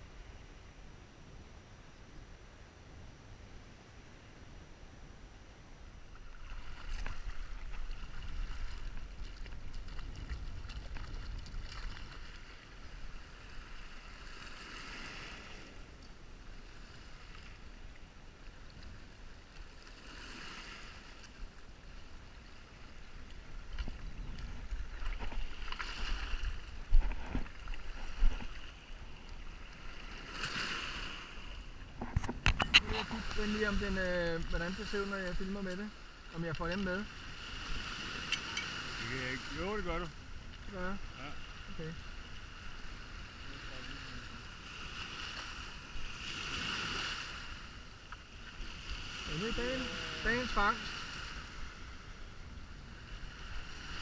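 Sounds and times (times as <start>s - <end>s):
wind rumble on microphone: 0.0s - 19.4s, 20.4s - 35.8s
waves washing over stony shore: 6.2s - 23.7s, 24.4s - 52.2s, 52.9s - 54.0s.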